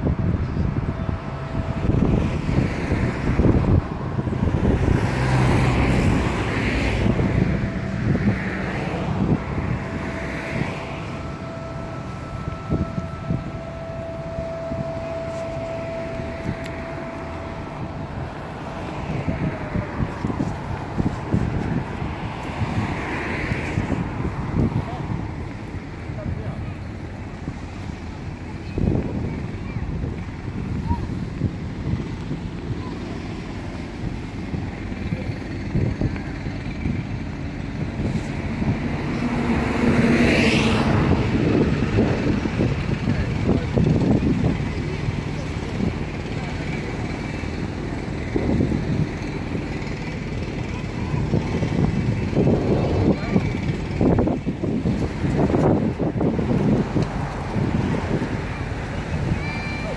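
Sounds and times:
vehicle passing: 0.0s - 59.9s
wind on microphone: 0.0s - 59.9s
footsteps on paved path: 1.8s - 26.1s.

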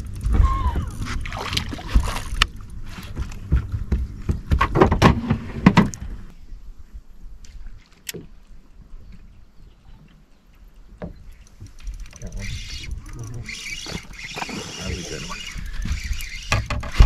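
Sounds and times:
water splashing: 0.0s - 2.6s
knocks and clatter against boat: 0.1s - 6.2s, 10.9s - 12.5s, 15.8s - 17.0s.

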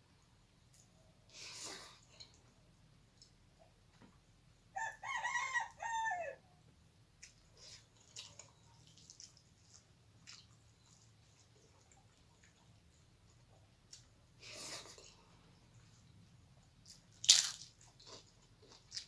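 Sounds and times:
rooster crowing: 4.7s - 6.5s
faint clicks of eating by hand: 7.2s - 14.1s.

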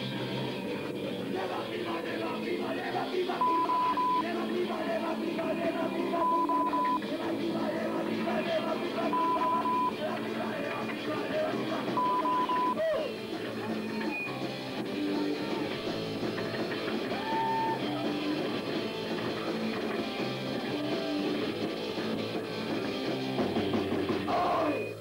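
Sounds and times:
electric guitar: 0.0s - 25.0s
rock band playing live: 6.2s - 24.4s.

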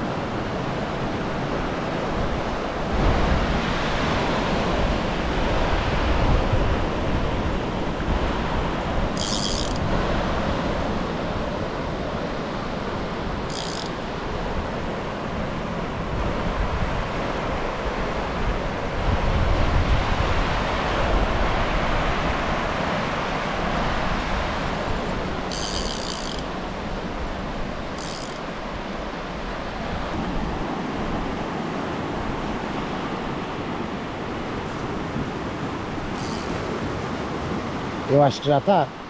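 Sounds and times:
wind on microphone: 0.0s - 38.1s
waves breaking on beach: 0.0s - 39.0s.

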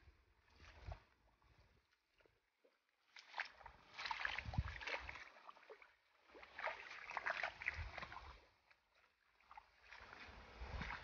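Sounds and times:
mud and water squelching: 0.5s - 11.0s
wet sack dragged over mud: 9.9s - 11.0s.

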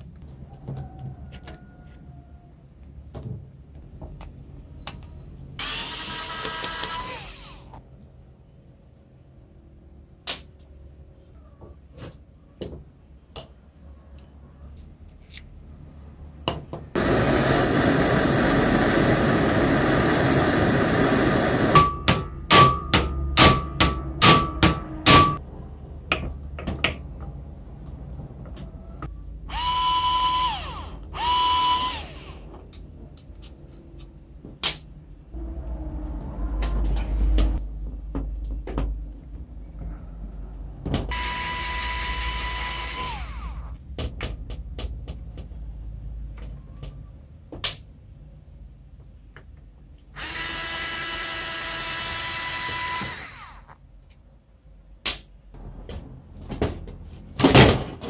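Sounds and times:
electric screwdriver whirring: 5.6s - 7.7s, 29.5s - 32.4s, 41.1s - 43.7s, 50.2s - 53.8s.

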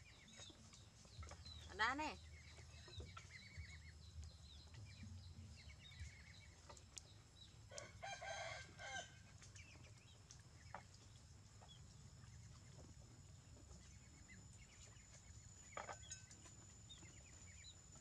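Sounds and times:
chickens clucking: 0.0s - 4.0s
rooster crowing: 7.7s - 9.2s.

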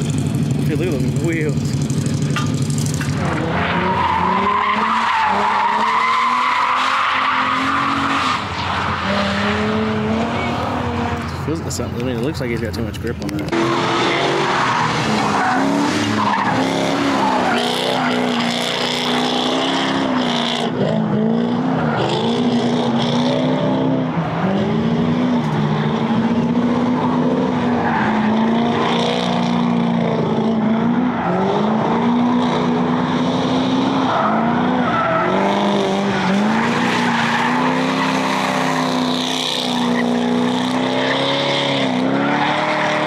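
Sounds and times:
car engine revving hard: 0.0s - 11.2s, 13.5s - 43.0s
tyres screeching: 1.6s - 11.9s, 13.5s - 20.6s, 26.6s - 43.0s.

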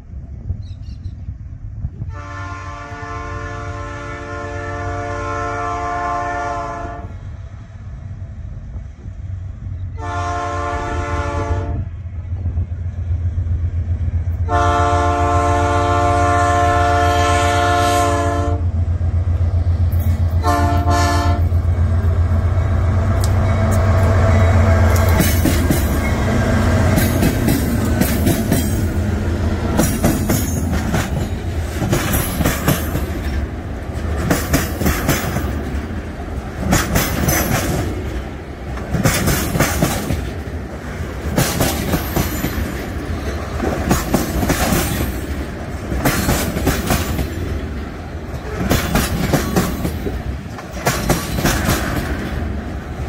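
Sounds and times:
locomotive low rumble: 0.0s - 53.0s
train horn: 2.0s - 7.2s, 9.9s - 12.0s, 14.4s - 18.7s, 20.4s - 22.2s
wheels clacking over rail joints: 19.8s - 53.0s.

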